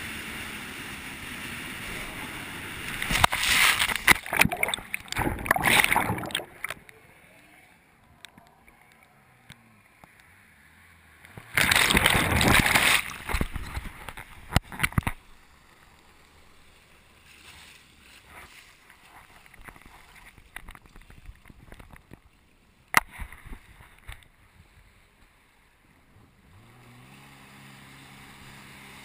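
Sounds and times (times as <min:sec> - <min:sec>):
water splashing against camera: 0:01.8 - 0:07.0, 0:11.4 - 0:15.2.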